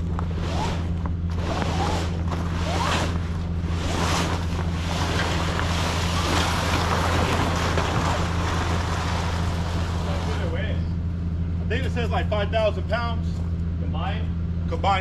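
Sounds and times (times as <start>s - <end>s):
vinyl tarp rustling and flapping: 0.0s - 10.4s
truck engine idling: 0.0s - 15.0s.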